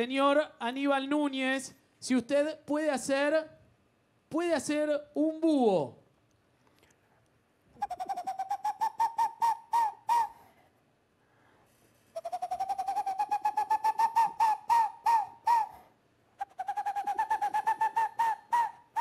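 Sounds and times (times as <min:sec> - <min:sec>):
man imitating owl hoots: 0:07.7 - 0:10.6, 0:12.2 - 0:19.0.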